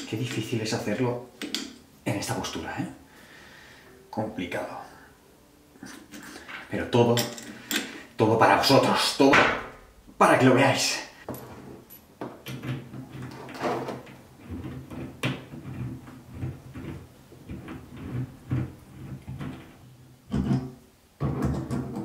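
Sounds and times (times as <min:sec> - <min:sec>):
metal fittings clicking and knocking: 0:01.4 - 0:01.8.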